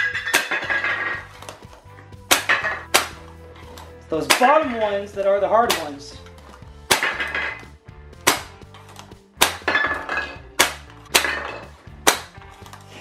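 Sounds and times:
toy launcher firing foam ball: 0:02.3 - 0:03.2, 0:09.4 - 0:09.7, 0:10.6 - 0:11.3.

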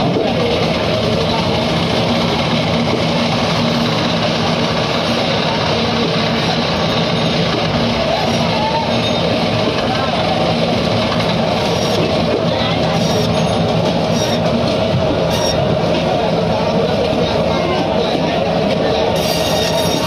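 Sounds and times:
band saw cutting fish: 0:02.8 - 0:15.8, 0:18.9 - 0:20.0.

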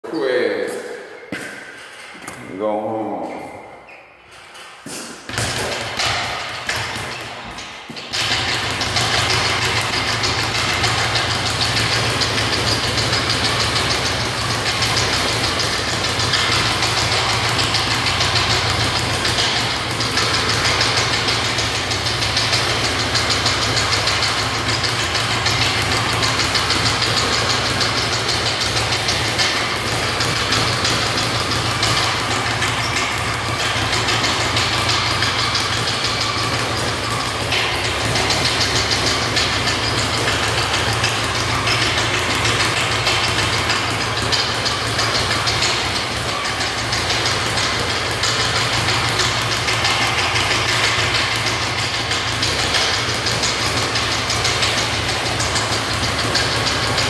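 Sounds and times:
speed bag rapid rattle: 0:04.6 - 0:57.0.

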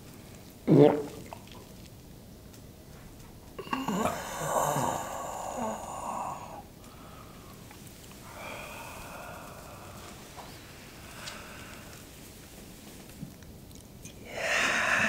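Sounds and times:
breathy sound: 0:03.6 - 0:12.1, 0:14.2 - 0:15.0.

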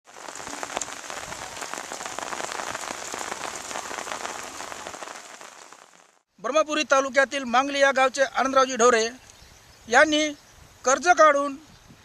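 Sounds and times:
rain falling on standing water: 0:00.0 - 0:06.3.

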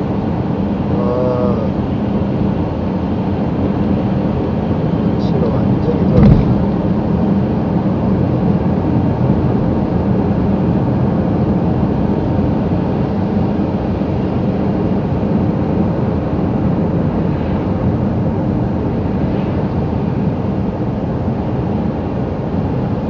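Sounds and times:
car cabin road noise: 0:05.1 - 0:07.2
tyres and engine cruising: 0:05.2 - 0:06.9.

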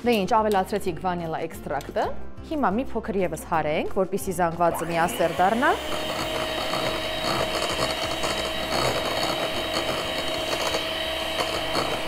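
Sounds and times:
electric hand mixer whining: 0:04.7 - 0:12.0.

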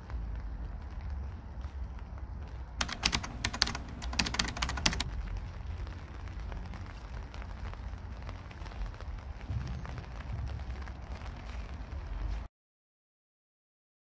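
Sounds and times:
keyboard typing clicks: 0:02.8 - 0:05.1.

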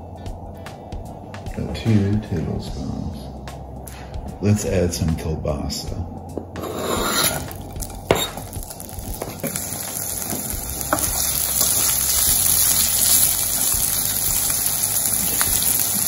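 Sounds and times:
sausage sizzling in oil: 0:06.6 - 0:16.0.

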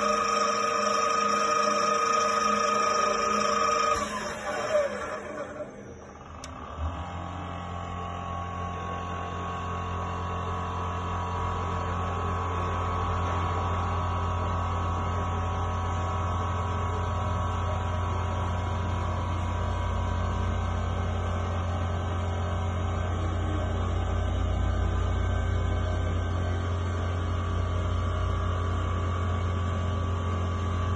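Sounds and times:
band saw motor humming: 0:00.0 - 0:08.8.

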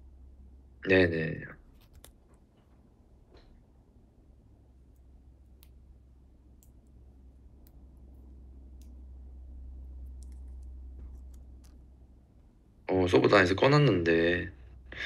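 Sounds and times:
low hum: 0:02.4 - 0:12.9.

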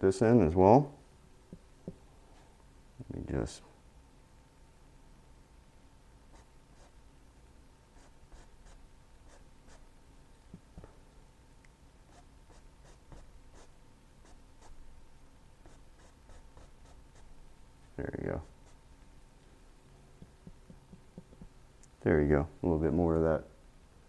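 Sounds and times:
faint steady hum: 0:00.0 - 0:24.0
paintbrush tapping on canvas: 0:20.2 - 0:21.5.

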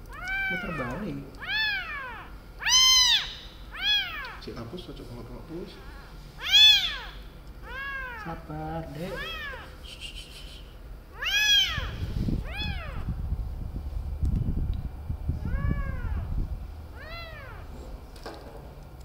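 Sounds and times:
kitten meowing: 0:00.0 - 0:04.4, 0:06.4 - 0:09.8, 0:11.1 - 0:13.1, 0:15.4 - 0:16.3, 0:16.9 - 0:17.7
low rumbling noise: 0:00.0 - 0:19.0.

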